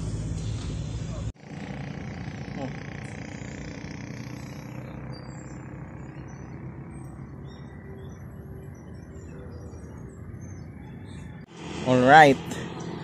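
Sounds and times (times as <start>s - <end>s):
faint bird chirps: 3.0s - 11.4s.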